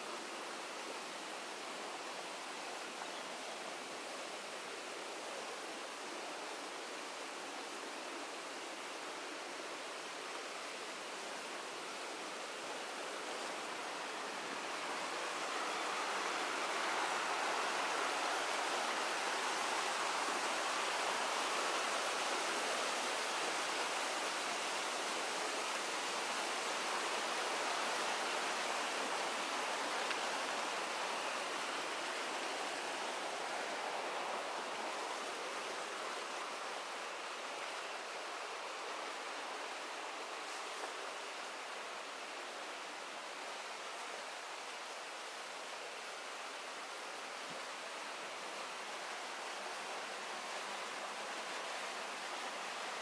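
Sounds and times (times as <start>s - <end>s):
flowing water rushing: 0.0s - 53.0s.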